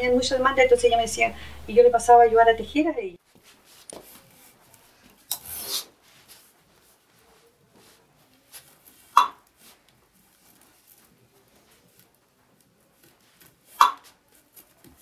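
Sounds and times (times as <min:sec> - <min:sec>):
cord rustling: 0:03.2 - 0:15.0
sharp wooden knock: 0:13.8 - 0:14.0.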